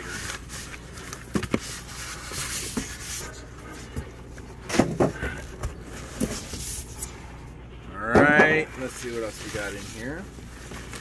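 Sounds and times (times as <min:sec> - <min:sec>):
packaging rustling: 0:08.8 - 0:11.0.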